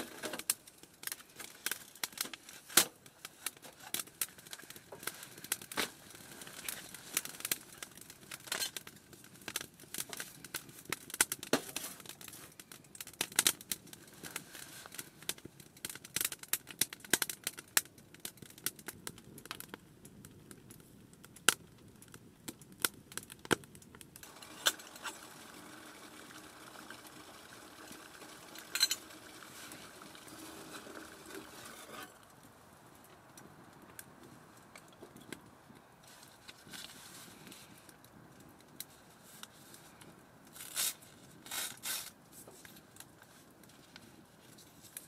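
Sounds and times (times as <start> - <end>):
soft hiss: 24.2 - 45.0.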